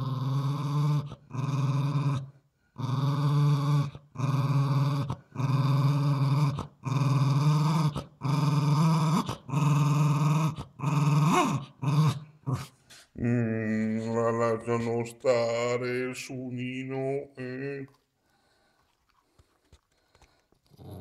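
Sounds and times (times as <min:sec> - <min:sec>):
small dog growling: 0:00.0 - 0:14.2, 0:20.7 - 0:21.0.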